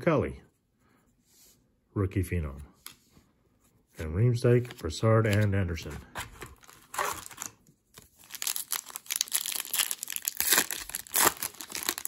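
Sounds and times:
foil wrapper crinkling and tearing: 6.5s - 12.0s.

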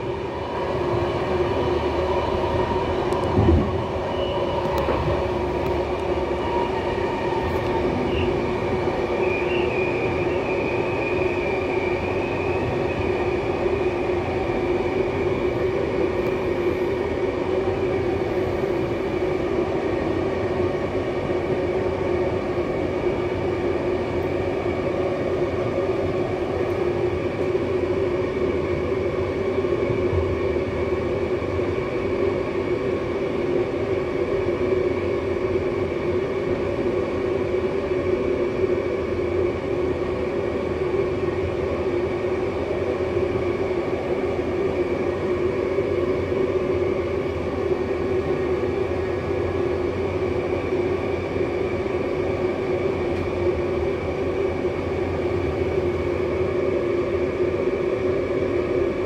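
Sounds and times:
train wheels rumbling on track: 0.0s - 59.0s
high wheel squeal: 4.0s - 8.5s, 9.1s - 13.3s.

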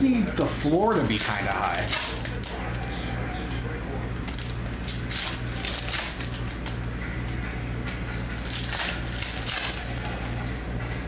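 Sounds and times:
foil wrapper crinkling and tearing: 0.0s - 3.0s, 4.2s - 6.8s, 7.9s - 10.4s.

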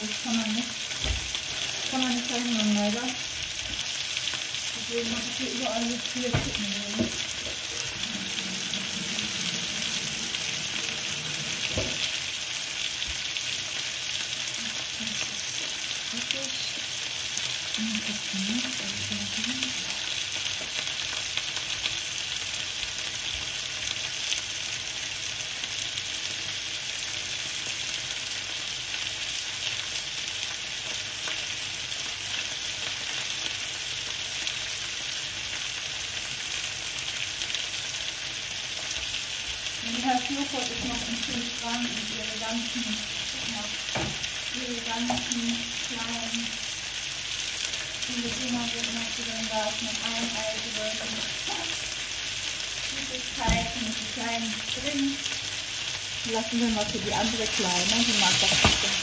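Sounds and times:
potatoes sizzling in a pan: 0.0s - 59.0s.

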